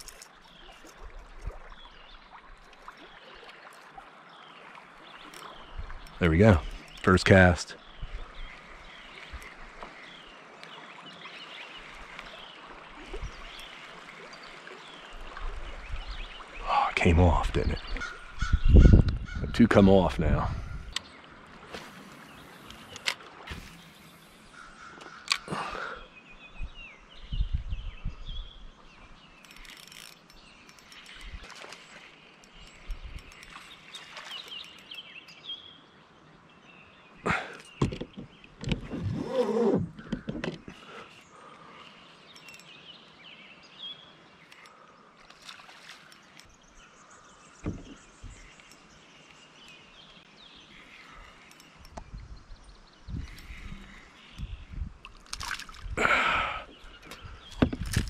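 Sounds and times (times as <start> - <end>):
gently moving water: 0.0 - 17.9, 29.4 - 35.0, 44.4 - 52.0, 53.2 - 58.0
birds chirping: 0.0 - 58.0
dull thump: 37.8 - 40.7, 47.6 - 48.4
light clicks: 50.9 - 52.1.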